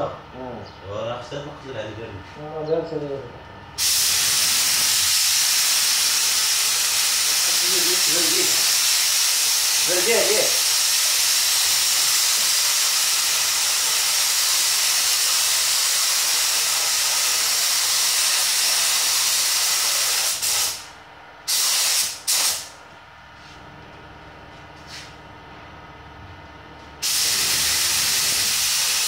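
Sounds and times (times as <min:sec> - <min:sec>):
spray gun hissing: 0:03.8 - 0:20.9, 0:21.5 - 0:22.7, 0:27.0 - 0:29.0.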